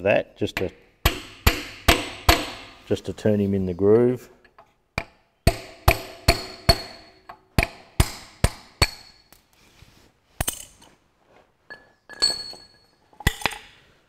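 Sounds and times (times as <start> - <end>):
hammer tapping metal tool: 0.6 - 2.8, 4.4 - 9.4
metal tools clinking: 11.6 - 13.8.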